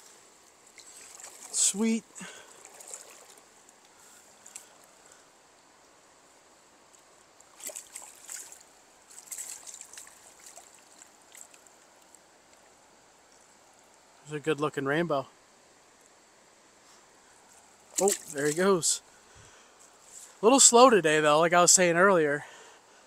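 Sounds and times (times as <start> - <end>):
river running: 0.0 - 23.0
water splashing and dripping: 0.5 - 4.9, 6.9 - 14.0, 17.6 - 18.9.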